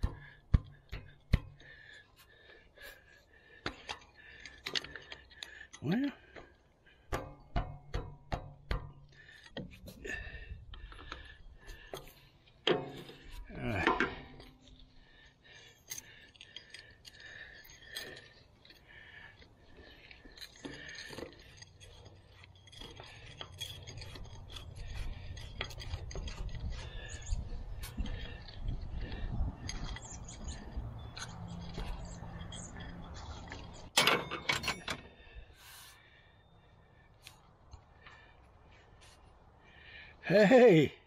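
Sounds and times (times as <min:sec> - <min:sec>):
metal tools clinking: 0:15.6 - 0:35.2.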